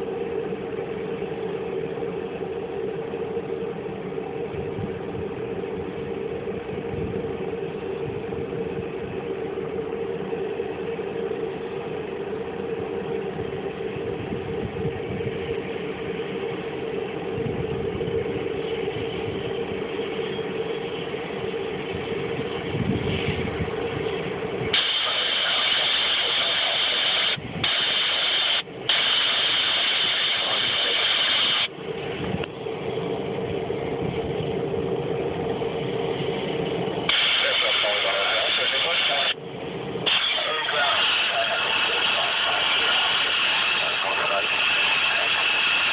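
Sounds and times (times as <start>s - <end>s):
turboprop engine idling: 0.0s - 45.9s
loud high-pitched hiss: 24.7s - 31.7s, 37.1s - 39.4s, 40.0s - 45.9s.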